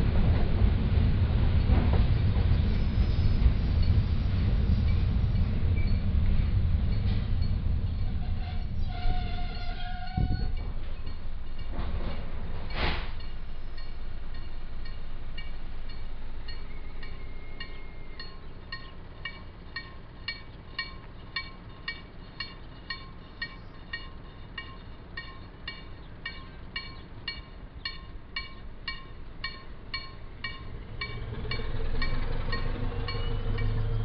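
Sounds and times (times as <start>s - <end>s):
train rumble: 0.0s - 34.0s
level-crossing warning bell: 6.9s - 7.8s, 13.2s - 34.0s.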